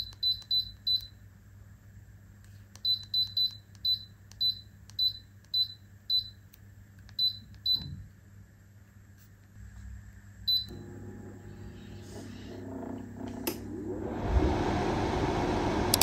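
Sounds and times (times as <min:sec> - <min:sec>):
low hum: 0:09.6 - 0:16.0.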